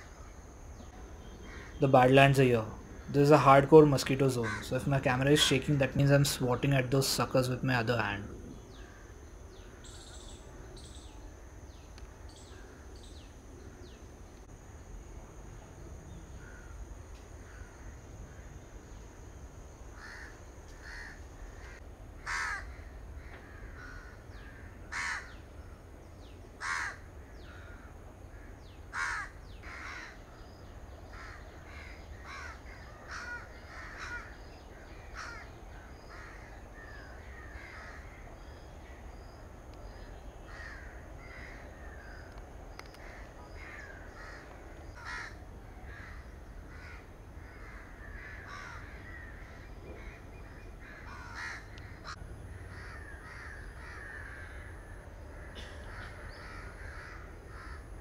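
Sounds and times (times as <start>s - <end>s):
steady high whine: 0.0s - 29.5s
crows cawing: 1.5s - 1.9s, 4.1s - 6.1s, 16.4s - 16.8s, 17.4s - 18.5s, 20.0s - 25.4s, 26.6s - 30.2s, 31.1s - 38.2s, 39.9s - 58.0s.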